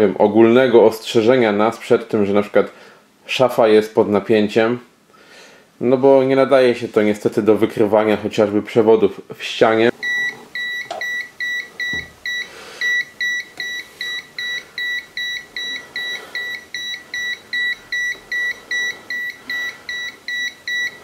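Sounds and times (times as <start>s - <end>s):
short high-pitched beeps: 10.0s - 21.0s.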